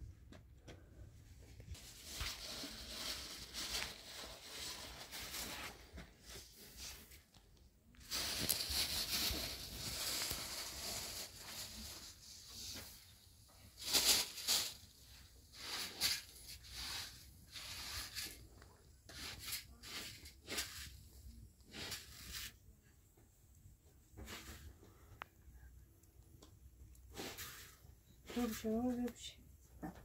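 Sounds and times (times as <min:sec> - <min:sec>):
hand tool scraping rough surface: 0:19.1 - 0:22.6.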